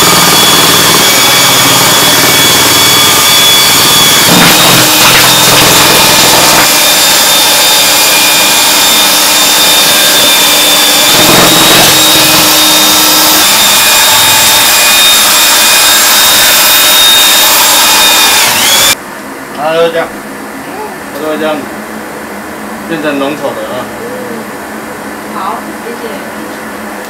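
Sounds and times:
electric drill mixer whining: 0:00.0 - 0:19.0.

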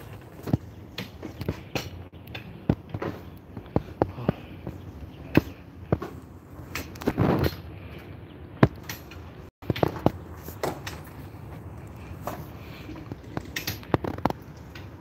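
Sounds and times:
footsteps on stone: 0:00.0 - 0:07.6.

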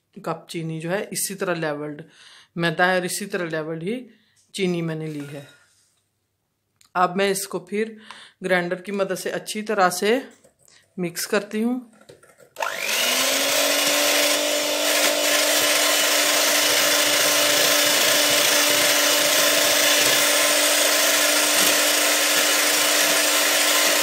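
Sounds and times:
electric hand mixer whining: 0:12.6 - 0:24.0.

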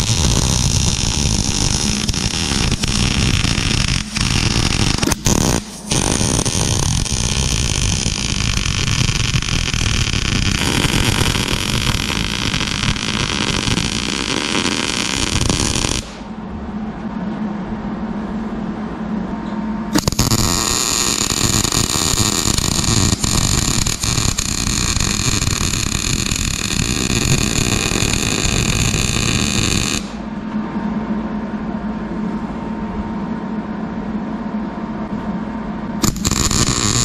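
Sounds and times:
welder arc crackling: 0:00.0 - 0:16.3, 0:19.9 - 0:30.2, 0:36.0 - 0:37.0
low hum: 0:00.0 - 0:37.0.

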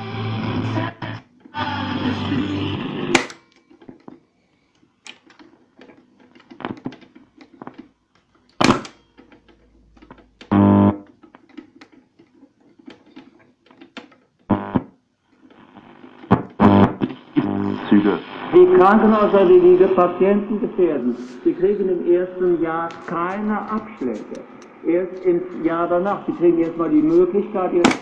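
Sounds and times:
music from a radio: 0:00.0 - 0:03.3
snatches of radio stations: 0:00.0 - 0:03.3, 0:06.4 - 0:07.0, 0:14.5 - 0:28.0
radio crackle: 0:05.8 - 0:07.8, 0:14.5 - 0:28.0.

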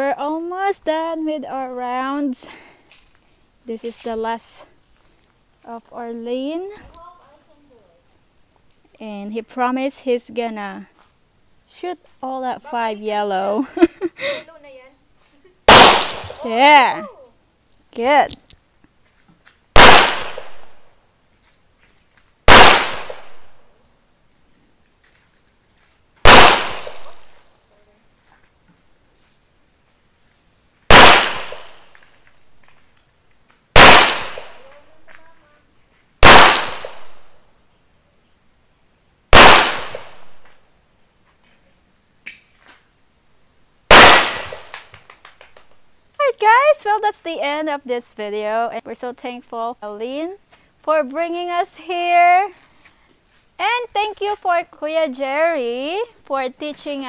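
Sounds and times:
pistol shots: 0:15.7 - 0:16.4, 0:19.8 - 0:20.8, 0:22.5 - 0:23.6, 0:26.2 - 0:27.3, 0:30.9 - 0:31.9, 0:33.8 - 0:34.6, 0:36.2 - 0:37.3, 0:39.3 - 0:40.5, 0:43.9 - 0:44.8.

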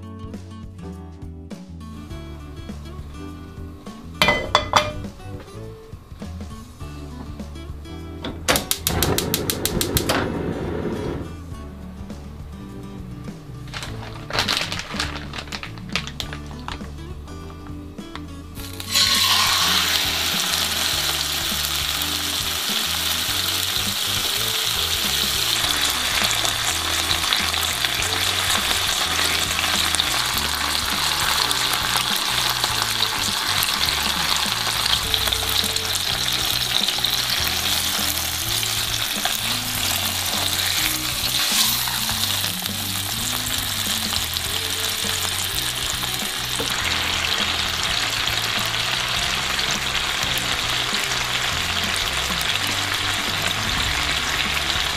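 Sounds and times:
chicken sizzling in hot oil: 0:02.0 - 0:07.5, 0:18.6 - 0:54.9.

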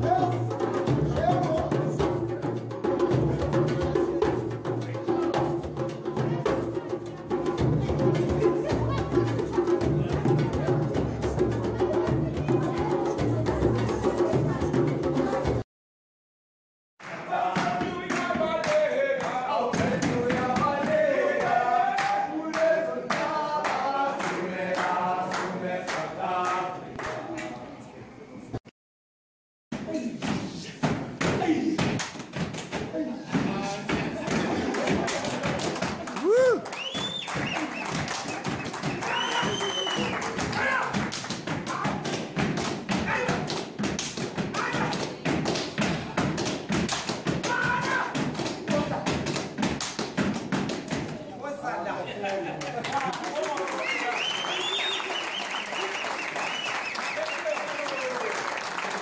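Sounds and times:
group singing in chorus: 0:17.1 - 0:27.0.

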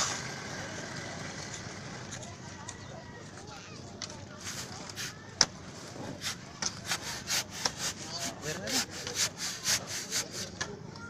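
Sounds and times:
rapid rhythmic scraping strokes: 0:04.3 - 0:10.7.

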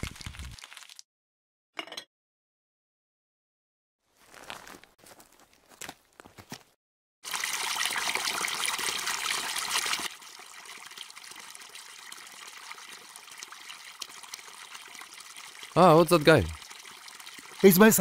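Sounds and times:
water splashing into a basin: 0:07.2 - 0:18.0
water trickling: 0:07.2 - 0:18.0.

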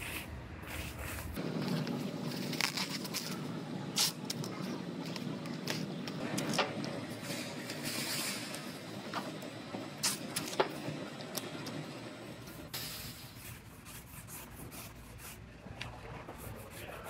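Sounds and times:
shop background noise: 0:00.0 - 0:17.0
plastic film rustling: 0:01.2 - 0:06.6
tape ripping: 0:01.8 - 0:03.4.

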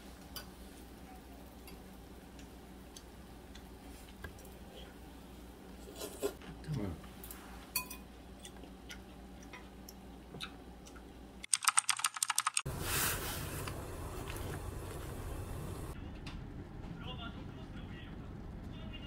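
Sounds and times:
keyboard typing clicks: 0:11.5 - 0:12.7
steady noisy hiss: 0:12.7 - 0:16.0.

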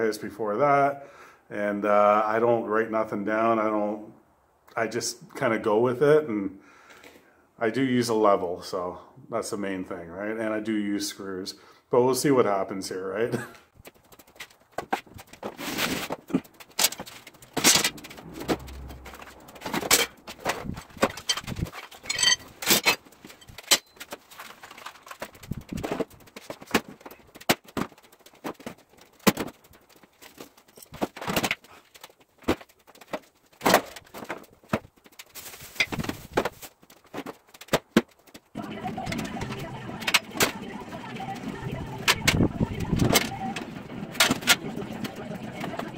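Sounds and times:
tools clattering on concrete floor: 0:19.2 - 0:27.2.

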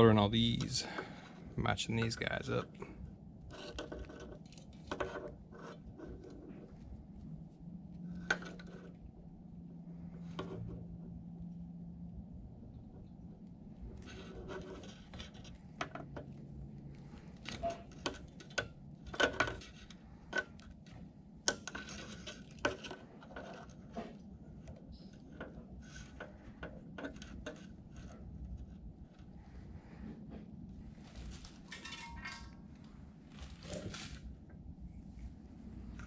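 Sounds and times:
wires rustling: 0:12.7 - 0:36.0.

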